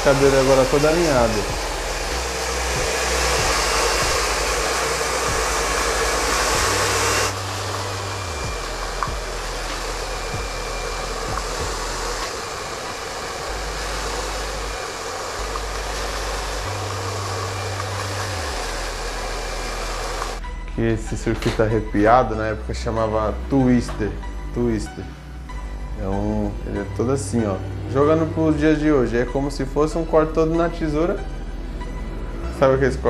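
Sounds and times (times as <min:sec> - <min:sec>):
hair dryer blowing: 0:00.0 - 0:20.5, 0:25.0 - 0:32.7.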